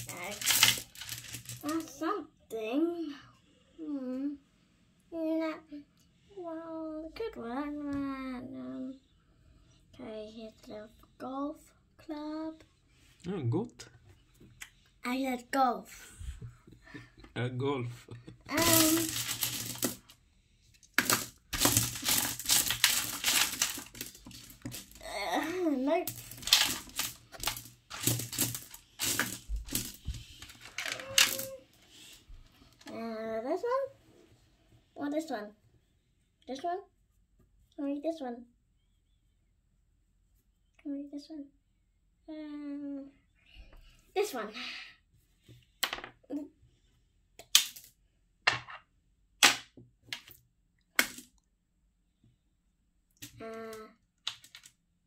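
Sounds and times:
pebbles clacking together: 0:00.0 - 0:02.0, 0:18.5 - 0:20.2, 0:20.8 - 0:31.6, 0:54.3 - 0:54.8.

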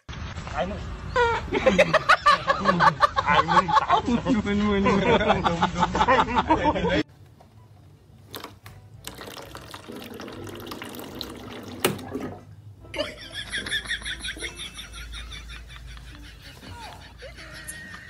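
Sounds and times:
water running from tap: 0:09.0 - 0:12.3.

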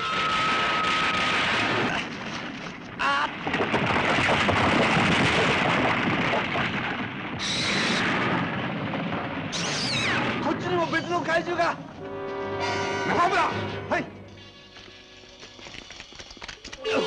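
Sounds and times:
explosion and fire rush: 0:00.0 - 0:12.0.

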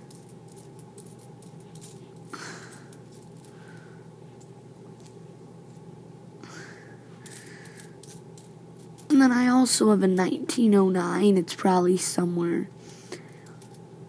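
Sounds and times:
coins clinking: 0:00.0 - 0:05.8, 0:07.2 - 0:09.5, 0:12.9 - 0:13.8.

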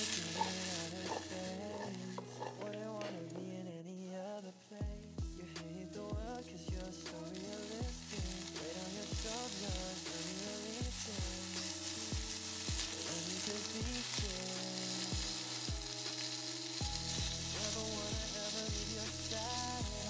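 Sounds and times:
shrimp sizzling in frying pan: 0:00.0 - 0:02.7, 0:05.9 - 0:20.0
music with kick-drum beat: 0:04.8 - 0:20.0.

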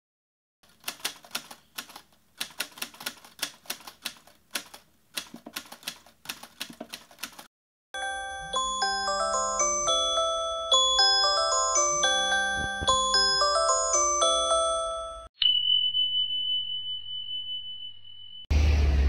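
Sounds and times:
music with mallet bell notes: 0:08.0 - 0:18.4.

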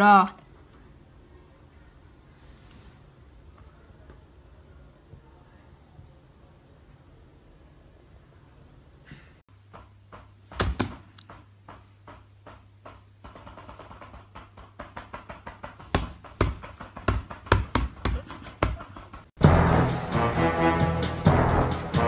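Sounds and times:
irregular knocks and taps: 0:09.5 - 0:19.4.

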